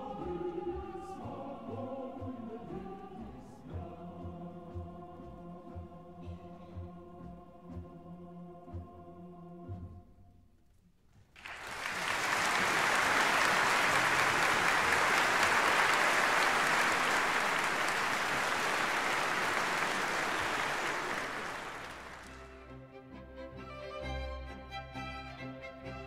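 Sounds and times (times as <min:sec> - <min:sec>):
audience applause: 0:11.4 - 0:22.5.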